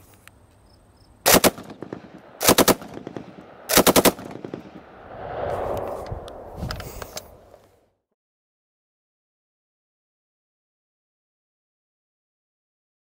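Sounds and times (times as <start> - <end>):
automatic rifle bursts: 1.3 - 4.6.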